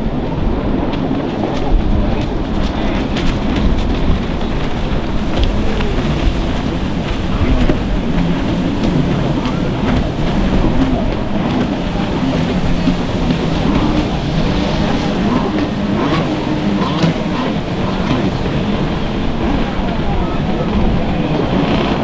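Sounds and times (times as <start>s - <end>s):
jet ski engine running hard: 0.0s - 22.0s
surf washing: 0.0s - 22.0s
wind noise on microphone: 0.0s - 22.0s.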